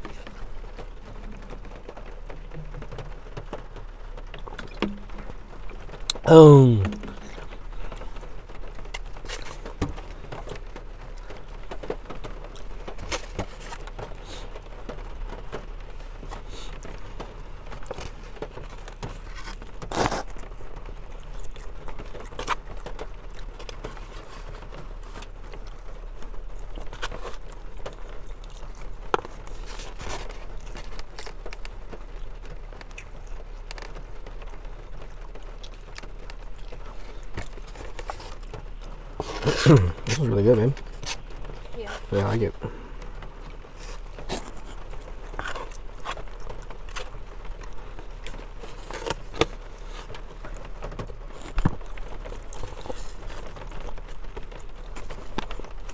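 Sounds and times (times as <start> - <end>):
chewing: 6.9 - 14.6, 16.2 - 55.9.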